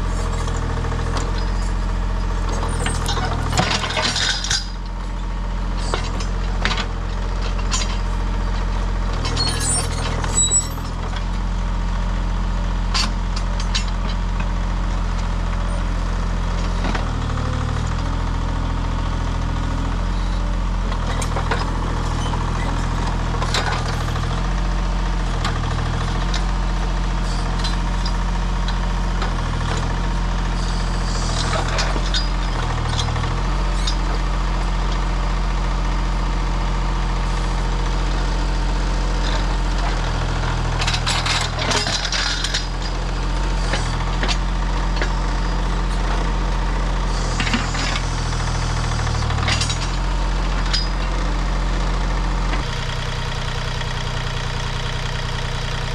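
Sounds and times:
excavator diesel engine running: 0:00.0 - 0:55.9.

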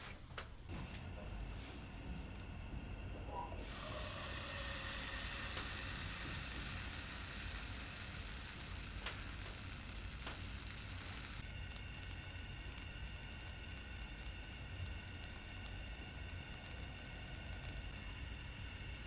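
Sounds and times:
pancake batter sizzling: 0:03.6 - 0:19.0
fine crackle of small ticks: 0:05.4 - 0:19.0.

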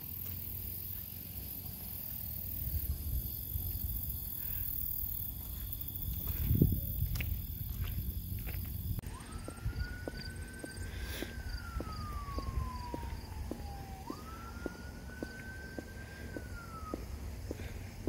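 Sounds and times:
low rumble: 0:01.6 - 0:18.0
footsteps: 0:05.3 - 0:18.0
distant siren wailing: 0:09.0 - 0:18.0.

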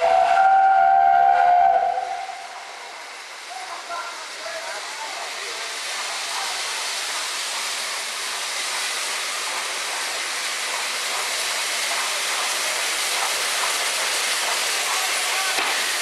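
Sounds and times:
steam locomotive rushing hiss: 0:00.0 - 0:16.0.

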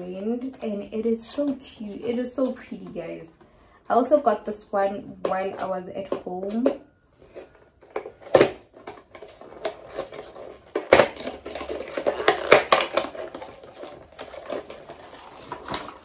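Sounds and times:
packaging rustling: 0:07.1 - 0:16.0.

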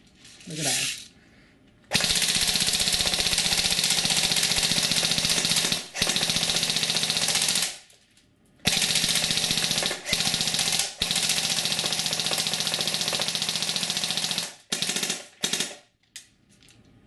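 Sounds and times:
airsoft gun full-auto rattle: 0:01.9 - 0:07.9, 0:08.7 - 0:15.9.

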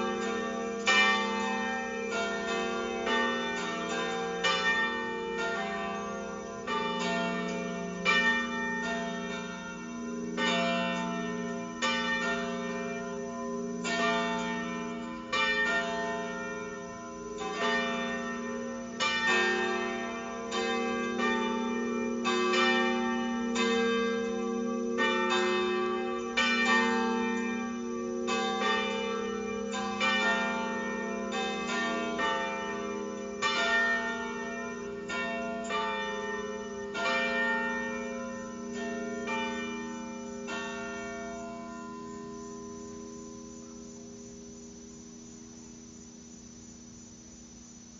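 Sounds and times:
church bells pealing: 0:00.0 - 0:43.6.

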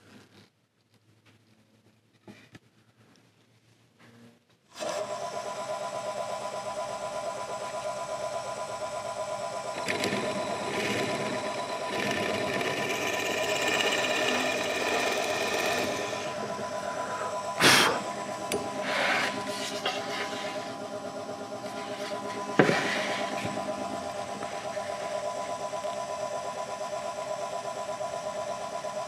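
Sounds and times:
drill press motor whine: 0:04.7 - 0:29.0
drill bit boring into wood: 0:09.6 - 0:17.0
loud sudden burst: 0:17.6 - 0:18.1.

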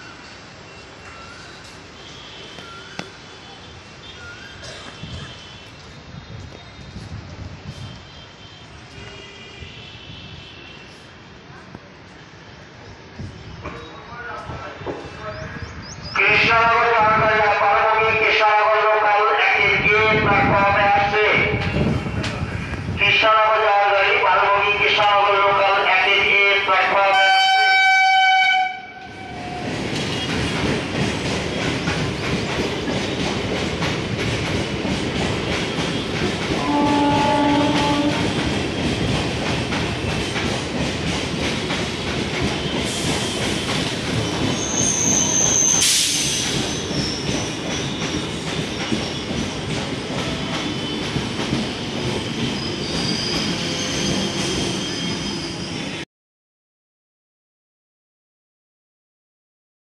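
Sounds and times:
train horn blast: 0:27.0 - 0:30.3, 0:36.6 - 0:38.4
train wheels clattering: 0:29.6 - 0:54.8
wheels squealing: 0:52.2 - 0:56.0.

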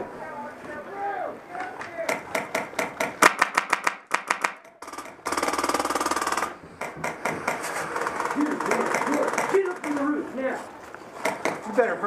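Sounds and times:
airsoft guns firing: 0:02.0 - 0:10.2, 0:11.2 - 0:11.7.

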